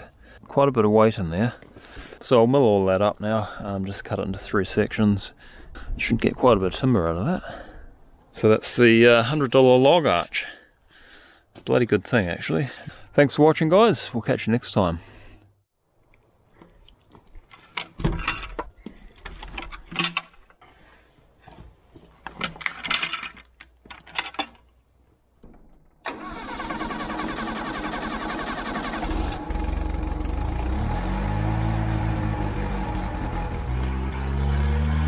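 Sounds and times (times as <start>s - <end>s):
sawmill engine running: 26.1s - 35.0s.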